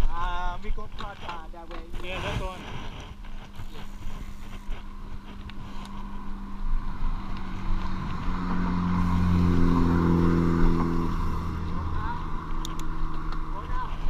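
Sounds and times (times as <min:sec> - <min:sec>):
bike rolling on paved road: 0:00.0 - 0:14.0
low hum: 0:00.0 - 0:14.0
wind on microphone: 0:00.0 - 0:14.0.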